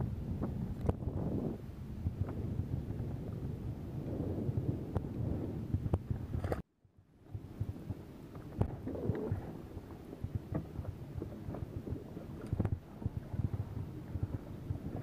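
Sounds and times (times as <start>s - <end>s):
wind rumble on microphone: 0.0s - 15.0s
water lapping against boat hull: 7.2s - 15.0s.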